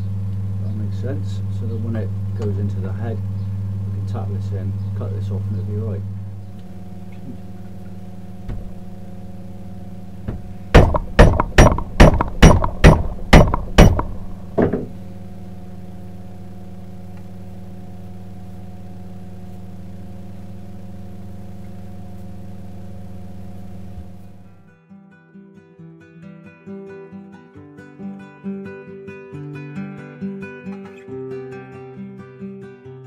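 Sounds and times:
steady low hum: 0.0 - 24.7
hammer tapping wooden wedge: 10.3 - 14.9.

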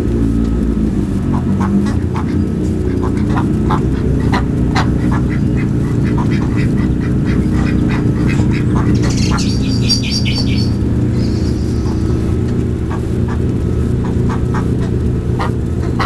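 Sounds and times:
steady low rumble: 0.0 - 16.0
ducks quacking: 1.2 - 16.0
high chirps: 8.9 - 12.2.

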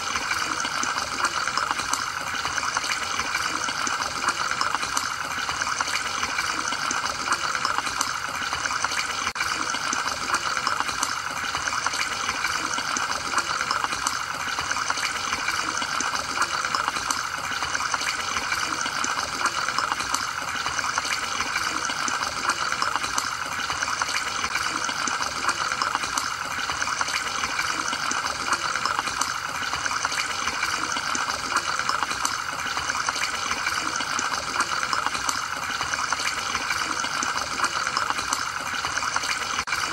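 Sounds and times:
aquarium filter bubbling: 0.0 - 39.9
bubbles bursting crackle: 0.0 - 39.9.

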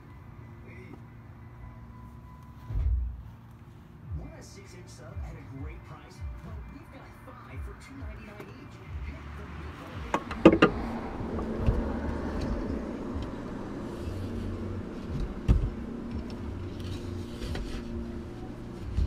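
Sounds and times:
low steady car hum: 0.0 - 19.0
wooden board knocking: 10.1 - 10.8.

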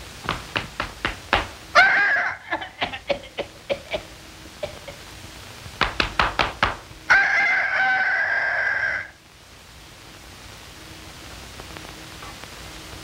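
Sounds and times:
rooster-like crowing call: 1.7 - 3.0, 7.0 - 9.2
sharp cartoon knocks: 5.8 - 6.8.

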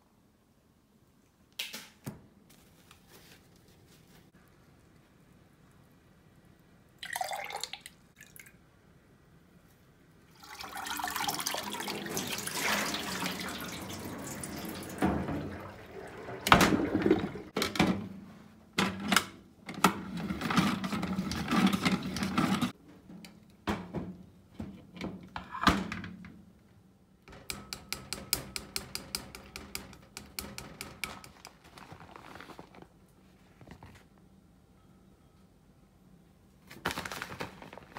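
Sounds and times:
water pouring into sink: 7.0 - 8.5, 10.4 - 17.5.

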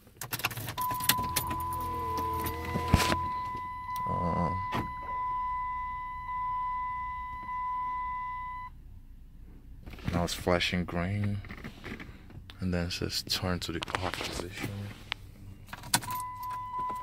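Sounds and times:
ignition key clicks: 0.2 - 8.6, 15.7 - 17.0
high electronic warning tone: 0.8 - 8.7
low electrical hum: 0.8 - 11.5.

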